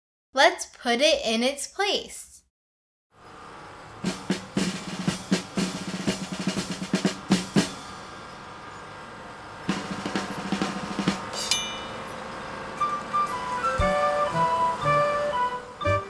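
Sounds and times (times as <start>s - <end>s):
snare and bass drum rolls: 4.0s - 8.0s, 9.7s - 11.4s
bright chime: 11.4s - 13.9s.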